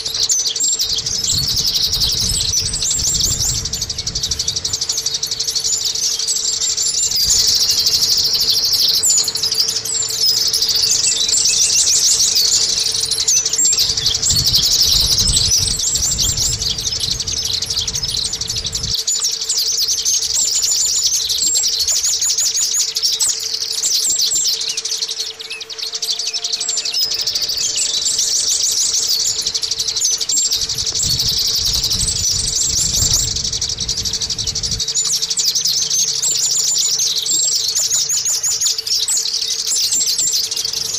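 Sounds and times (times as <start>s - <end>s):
bird twittering song: 0.0s - 40.9s.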